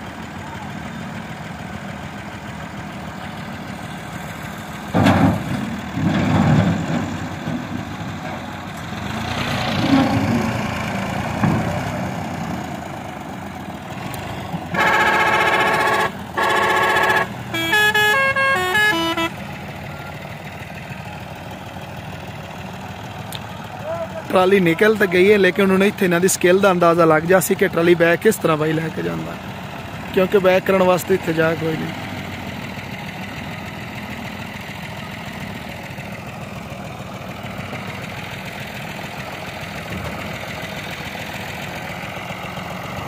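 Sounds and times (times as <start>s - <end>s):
tractor diesel engine revving: 0.0s - 43.0s
musical horn tune: 14.7s - 19.4s
vehicle horn blasts: 14.7s - 19.4s.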